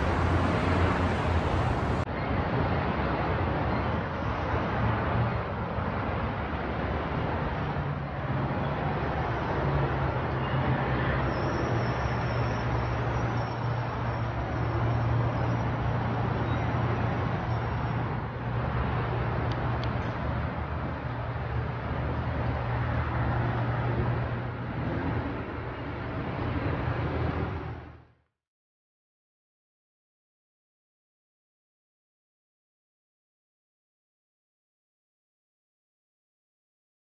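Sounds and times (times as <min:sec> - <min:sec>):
low hum: 0:00.0 - 0:02.0
steady rumbling noise: 0:00.0 - 0:02.0.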